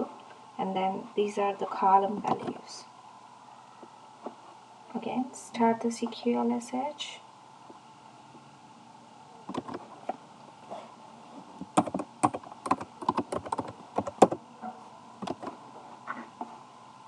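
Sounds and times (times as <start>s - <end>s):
computer keyboard keystrokes: 9.5s - 9.8s, 11.8s - 14.4s, 15.2s - 15.6s.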